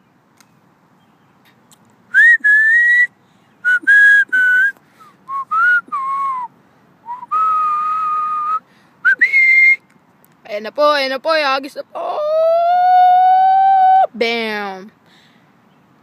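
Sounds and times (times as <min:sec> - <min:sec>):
person whistling a tune: 0:02.1 - 0:06.5, 0:07.1 - 0:09.8.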